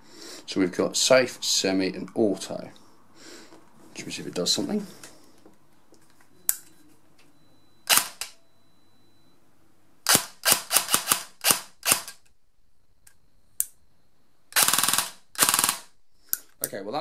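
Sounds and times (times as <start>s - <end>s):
airsoft gearbox firing: 7.9s - 8.4s, 10.1s - 12.2s, 14.6s - 15.9s.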